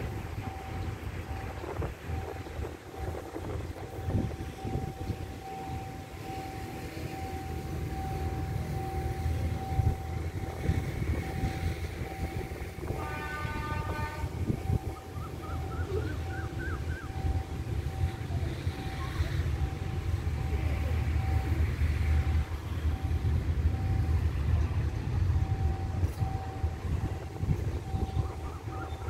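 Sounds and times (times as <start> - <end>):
wind on microphone: 0.0 - 6.6, 7.2 - 29.0
steady high tone: 0.0 - 29.0
faint train horn: 10.7 - 15.0.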